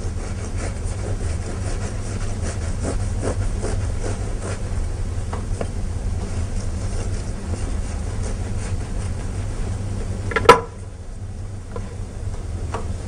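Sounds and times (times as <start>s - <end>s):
knife sawing through bread: 0.0s - 4.8s, 6.3s - 9.7s.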